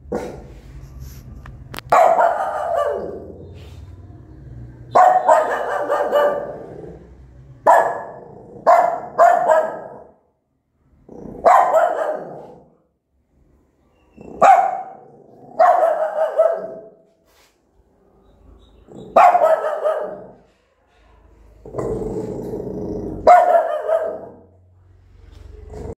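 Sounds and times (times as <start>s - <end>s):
dog barking: 0.0s - 0.5s, 1.9s - 3.7s, 4.8s - 6.7s, 7.6s - 10.2s, 11.4s - 12.8s, 14.2s - 17.1s, 18.8s - 20.5s, 23.2s - 24.6s.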